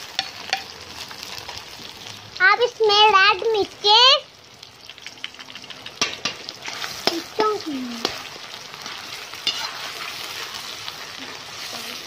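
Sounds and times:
vegetables sizzling in hot oil: 0.0 - 12.0
metal spatula scraping pan: 8.0 - 12.0.

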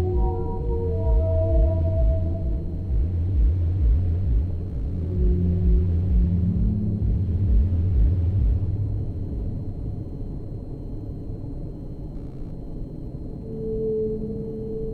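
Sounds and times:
held synth tone: 0.0 - 3.1, 13.4 - 14.9
pulsing synth bass beat: 0.0 - 9.5
low rumbling drone: 0.0 - 14.9.

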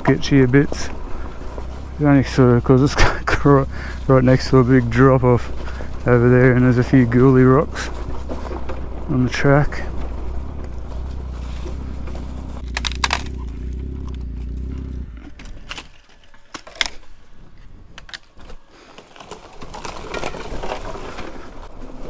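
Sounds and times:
motorcycle engine running: 0.0 - 15.7
sharp clicks and knocks: 9.9 - 17.0.

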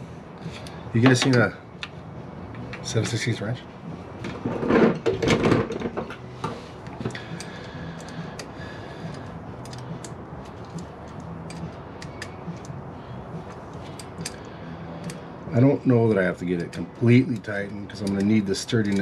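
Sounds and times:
wrench clicking on bolt: 9.1 - 12.8, 16.6 - 19.0.

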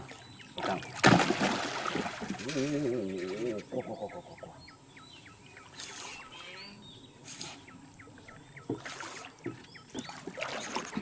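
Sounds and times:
fish splashing and thrashing: 0.6 - 3.5, 8.7 - 11.0.

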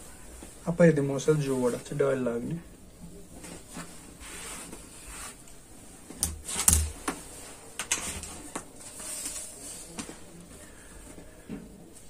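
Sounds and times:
ruler knocking on table: 6.2 - 7.0.

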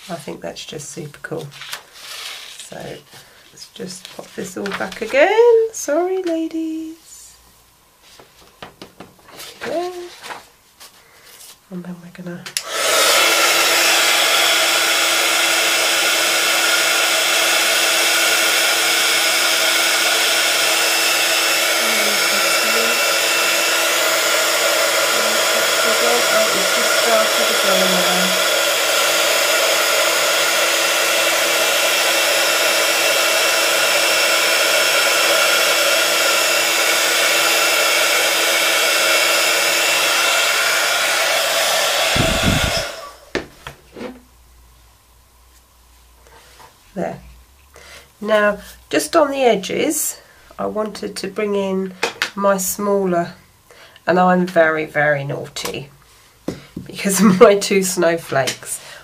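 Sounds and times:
heat tool fan whirring: 12.6 - 44.2.

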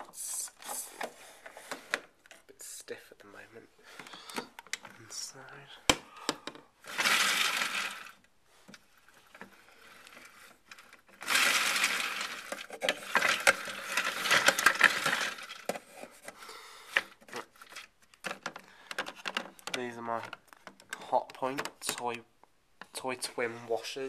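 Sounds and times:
toy washing machine rattling: 6.8 - 8.2, 9.2 - 16.0.

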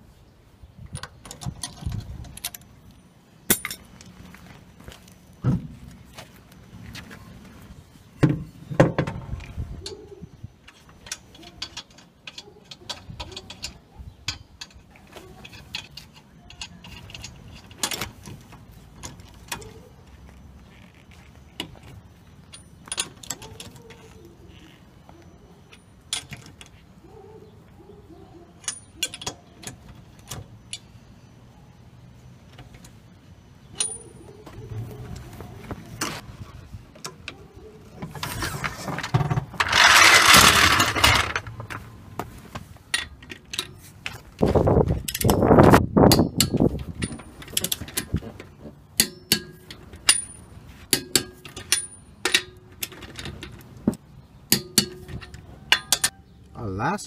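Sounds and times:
wrench clicking on lug nuts: 39.6 - 41.4, 54.5 - 56.2.

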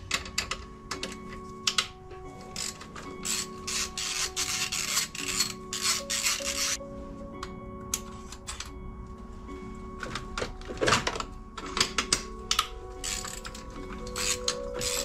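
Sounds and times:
socket ratchet rasping: 2.4 - 6.8, 12.0 - 15.0.

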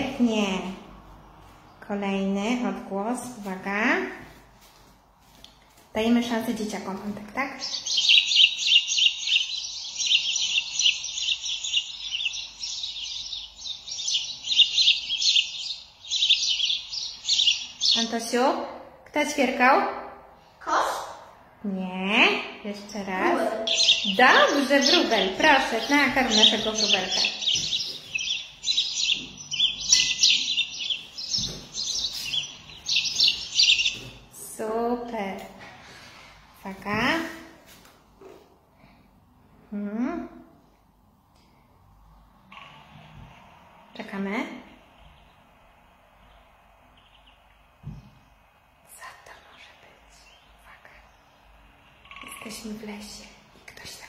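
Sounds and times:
sparrows chirping: 0.0 - 2.8, 6.0 - 18.5, 22.7 - 35.2, 44.0 - 54.0.

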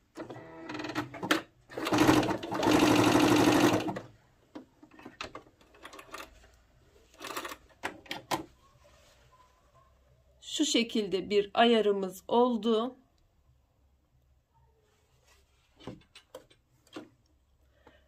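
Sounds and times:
sewing machine stitching: 0.1 - 4.1
fabric handling sounds: 8.5 - 10.0, 14.8 - 16.1.

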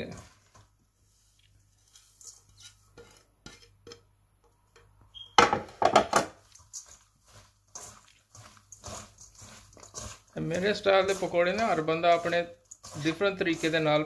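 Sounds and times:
utensils clinking against mixing bowl: 6.5 - 14.0.

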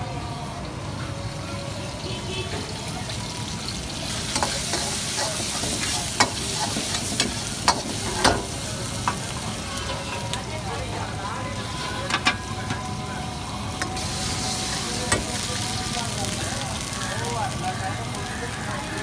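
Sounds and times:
food sizzling in a wok: 0.0 - 19.0
metal ladle scraping a wok: 4.2 - 10.4, 11.6 - 12.8.

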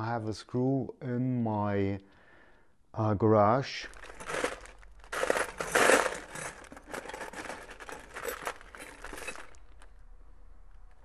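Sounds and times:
plastic bags crinkling: 3.8 - 10.0.

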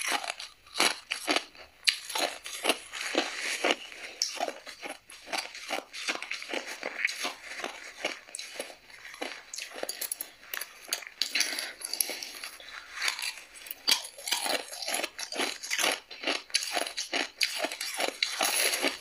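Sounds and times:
ice crunching between teeth: 0.0 - 19.0.

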